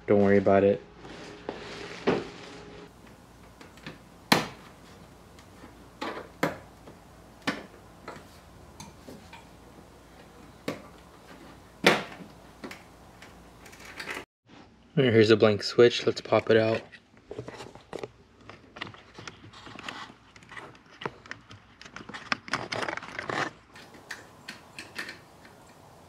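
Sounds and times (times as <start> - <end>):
sharp clicks and knocks: 23.8 - 26.0.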